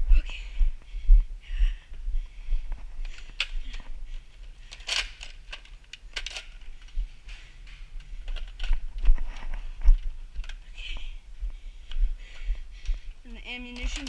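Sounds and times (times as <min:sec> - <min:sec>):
camera rustling: 0:02.7 - 0:11.1
footsteps at quick walk: 0:06.8 - 0:13.2
light clicks and rattles: 0:11.9 - 0:14.0.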